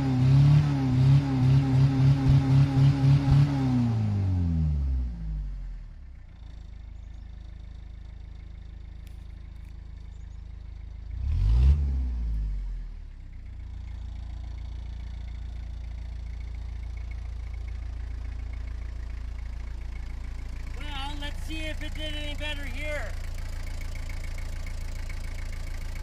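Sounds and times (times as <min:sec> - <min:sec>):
truck engine revving and idling: 0:00.0 - 0:26.0.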